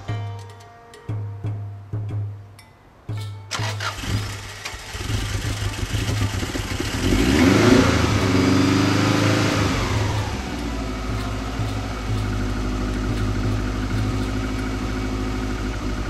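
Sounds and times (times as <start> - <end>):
car engine starting and idling: 3.5 - 16.0.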